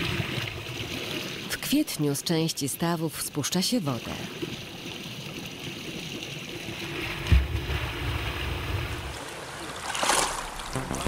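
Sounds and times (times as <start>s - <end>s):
water sloshing and splashing: 3.7s - 10.8s
rushing splash: 6.9s - 11.0s.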